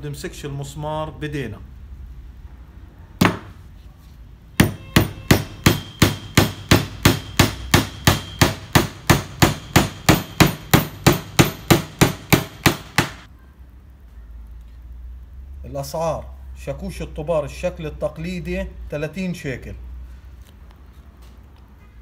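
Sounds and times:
hammer driving a nail into wood: 0:03.2 - 0:03.6, 0:04.6 - 0:13.3.

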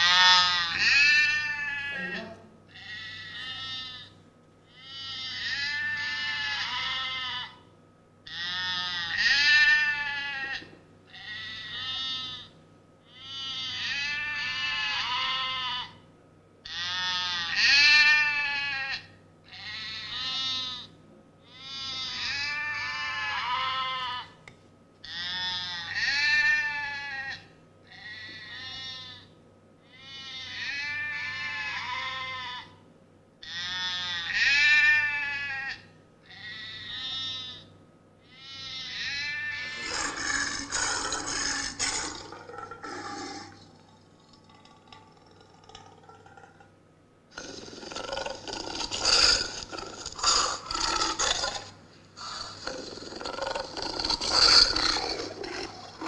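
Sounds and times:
sheep bleating: 0:00.0 - 0:07.6, 0:08.3 - 0:16.0, 0:16.7 - 0:20.9, 0:21.5 - 0:24.4, 0:25.0 - 0:29.3, 0:29.9 - 0:32.8, 0:33.4 - 0:37.7, 0:38.3 - 0:45.0, 0:53.6 - 0:56.0.

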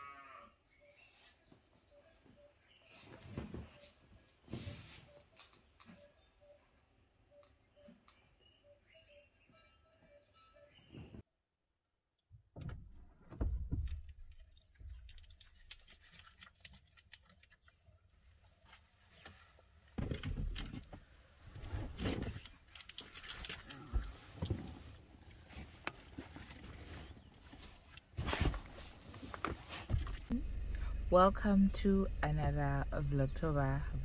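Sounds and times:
rustling of person getting into car seat: 0:24.1 - 0:30.3.

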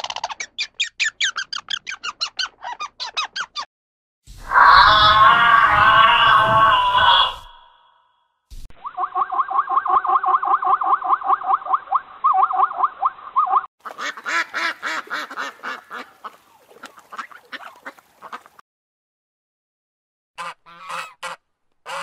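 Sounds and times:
rapid quack-like animal calls: 0:20.4 - 0:22.0.

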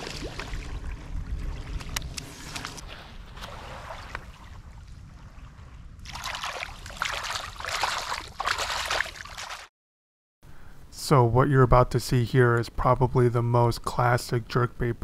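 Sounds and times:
hands splashing seawater: 0:06.0 - 0:09.7.

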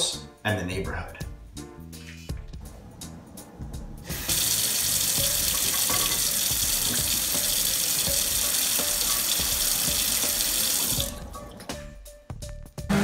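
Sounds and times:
faucet running into metal sink: 0:04.1 - 0:11.6.

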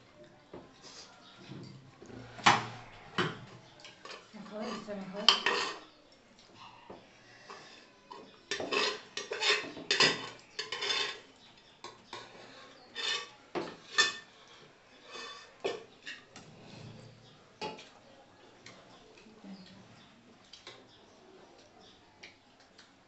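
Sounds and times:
spoon scraping steel plate: 0:04.0 - 0:05.9, 0:08.5 - 0:11.3, 0:12.9 - 0:14.3, 0:15.0 - 0:16.3.

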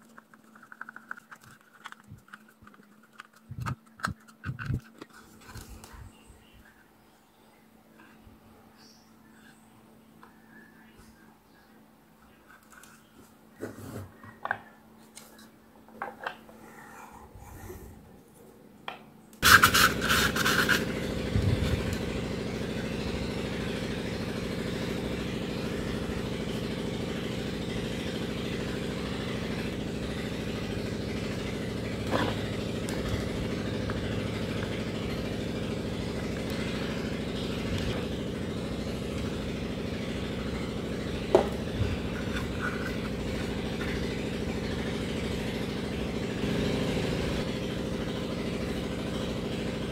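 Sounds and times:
plastic parts clicking: 0:00.0 - 0:05.7
engine idling: 0:19.4 - 0:49.9.

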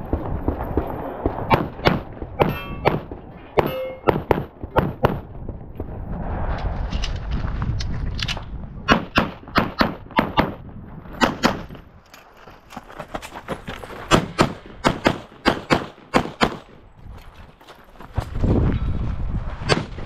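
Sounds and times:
rapid pistol shots: 0:01.4 - 0:05.2, 0:14.1 - 0:16.7.

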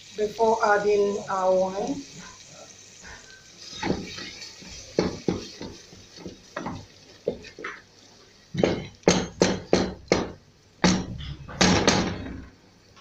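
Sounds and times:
spatula knocking on pot: 0:05.0 - 0:07.8, 0:08.6 - 0:12.3.

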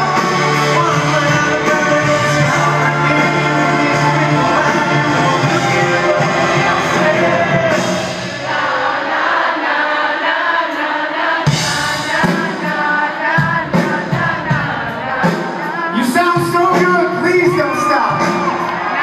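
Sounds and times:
live rock band with singing: 0:00.0 - 0:09.5, 0:11.2 - 0:19.0.

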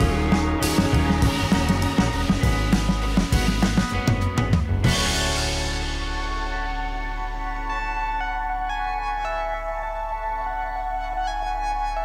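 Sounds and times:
drumbeat: 0:00.0 - 0:06.6
held chords ringing: 0:00.0 - 0:12.0.

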